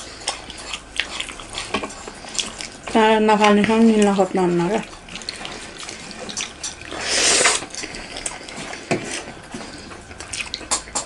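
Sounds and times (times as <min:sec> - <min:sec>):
slurp: 0:05.2 - 0:08.2.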